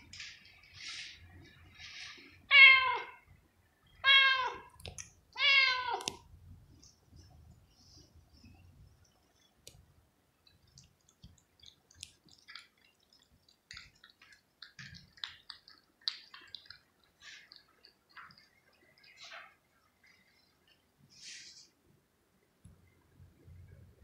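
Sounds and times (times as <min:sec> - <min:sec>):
cat chewing and licking: 0:09.0 - 0:20.9.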